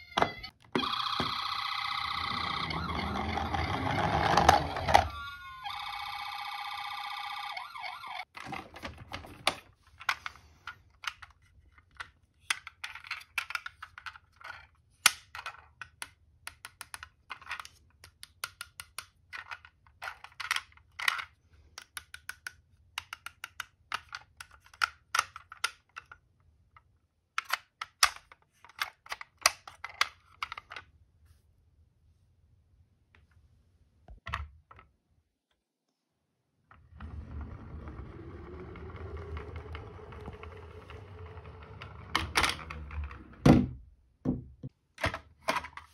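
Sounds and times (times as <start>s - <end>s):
toy electronic siren: 0.0s - 8.3s.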